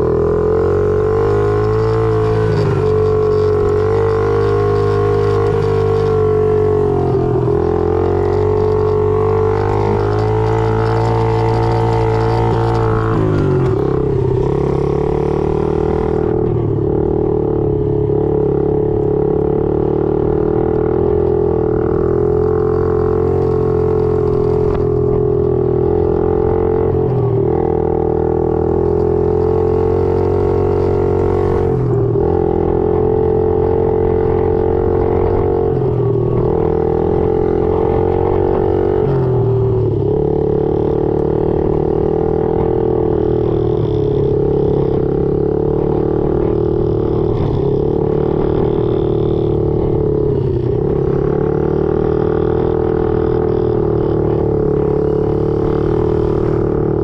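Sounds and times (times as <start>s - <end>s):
small motorbike engine running: 0.0s - 57.0s.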